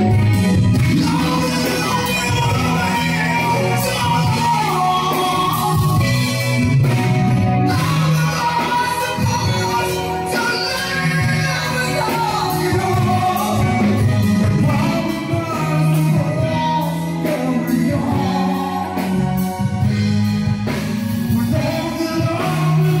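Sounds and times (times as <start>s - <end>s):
rock band playing: 0.0s - 23.0s.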